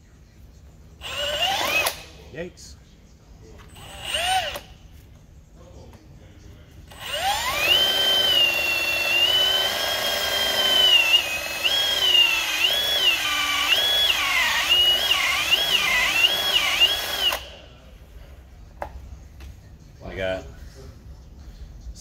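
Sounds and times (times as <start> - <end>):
electric drill motor whine: 1.0 - 2.1, 3.7 - 4.7, 6.9 - 17.6.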